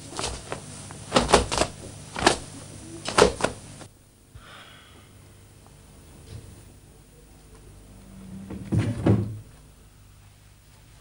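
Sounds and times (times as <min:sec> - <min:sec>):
sharp whacks of blows: 0:00.2 - 0:03.6.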